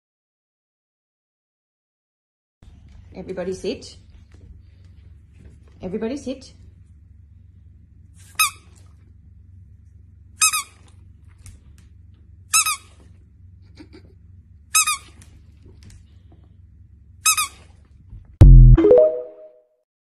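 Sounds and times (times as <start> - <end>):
squeaky dog toy squeaking: 10.4 - 10.8, 12.5 - 12.9, 14.8 - 15.2, 17.2 - 17.7.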